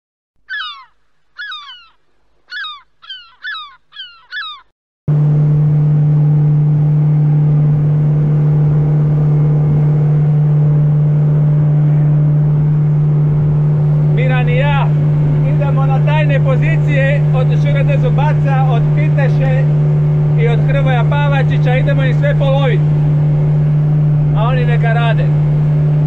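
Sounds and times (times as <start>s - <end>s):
gull cries: 0.4s - 4.7s
motorboat engine humming: 0.4s - 26.0s.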